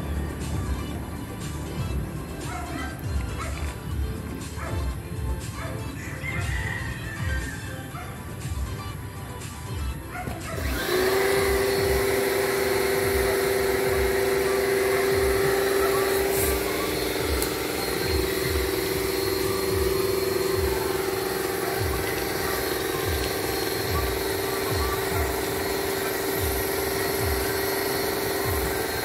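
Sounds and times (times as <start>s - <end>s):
machine motor humming whine: 10.2s - 29.0s.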